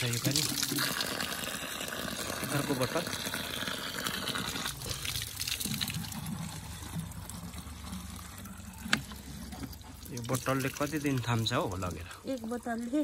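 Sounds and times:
water pouring into plastic bottle: 0.0s - 13.0s.

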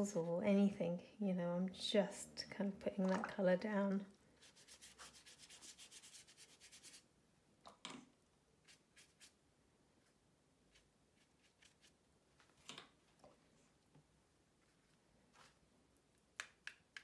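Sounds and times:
brush scrubbing on paper: 4.4s - 7.0s, 8.6s - 9.4s, 10.7s - 12.0s.

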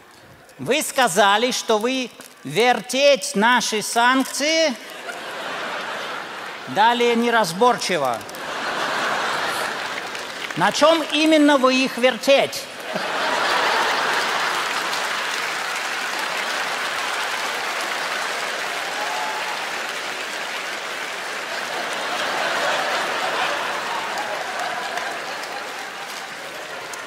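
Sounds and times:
studio audience applauding: 4.5s - 27.0s
audience laughing: 4.8s - 11.4s, 12.7s - 17.2s, 21.2s - 27.0s.

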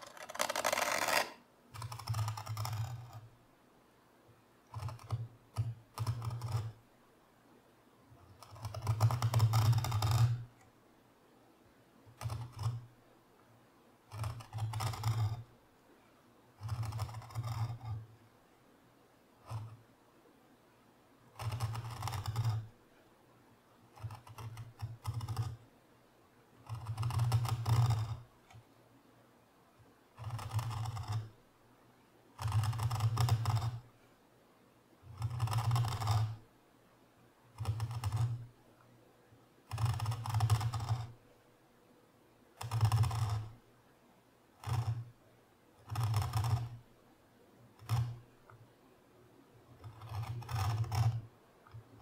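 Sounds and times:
carving tool cutting wood: 0.0s - 3.3s, 4.6s - 6.8s, 8.2s - 10.5s, 12.1s - 12.9s, 14.1s - 15.5s, 16.6s - 18.0s, 19.4s - 19.8s, 21.4s - 22.7s, 23.9s - 25.6s, 26.6s - 28.3s, 30.2s - 31.4s, 32.4s - 33.9s, 35.1s - 36.4s, 37.6s - 38.5s, 39.7s - 41.2s, 42.6s - 43.6s, 44.6s - 45.1s, 45.8s - 46.8s, 47.8s - 48.2s, 49.8s - 52.0s.

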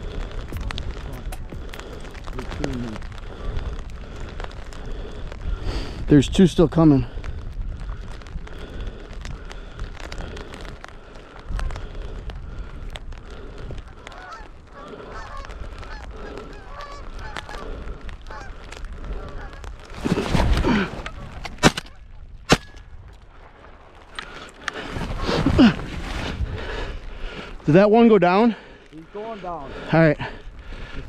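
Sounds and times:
wind on microphone: 0.0s - 27.6s
geese honking: 13.9s - 19.7s
shotgun shots: 22.5s - 22.8s.

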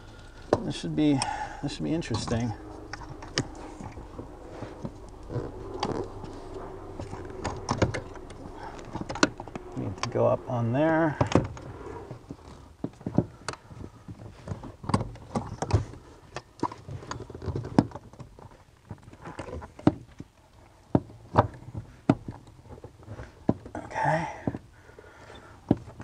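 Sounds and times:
clicks and knocks of car parts: 12.8s - 23.8s, 25.6s - 26.0s.

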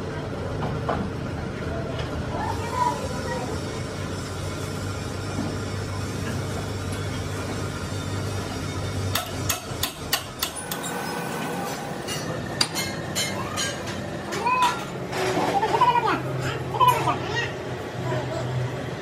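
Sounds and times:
low machine hum: 0.0s - 19.0s.

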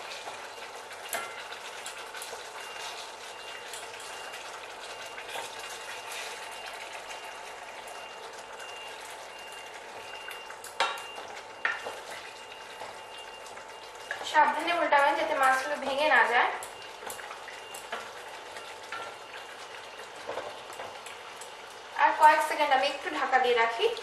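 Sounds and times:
curry sizzling in a pan: 0.0s - 24.0s.

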